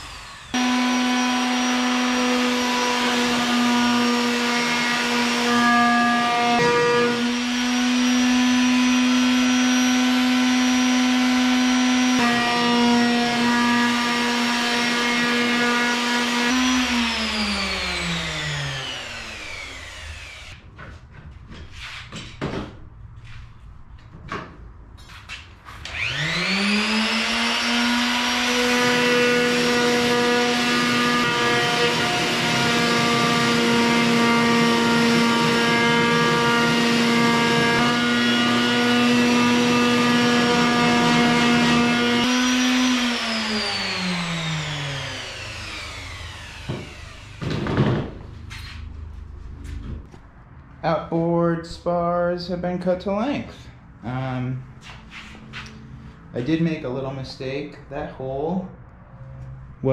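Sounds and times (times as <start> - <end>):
power tool cutting metal: 0.0 - 20.6, 25.8 - 47.6.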